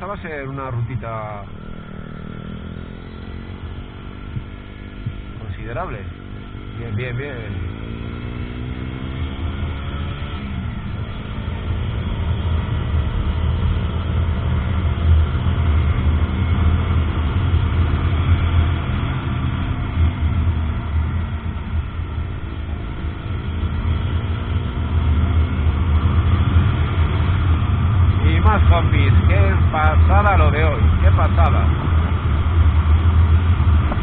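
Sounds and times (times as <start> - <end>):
motorcycle engine running: 0.0 - 34.0
wind rushing over microphone: 30.9 - 34.0.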